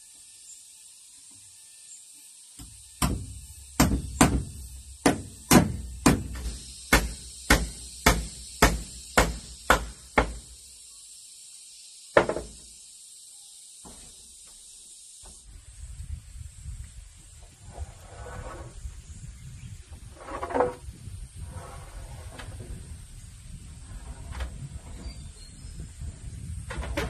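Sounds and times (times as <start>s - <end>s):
hammer nailing into wood: 2.6s - 10.5s.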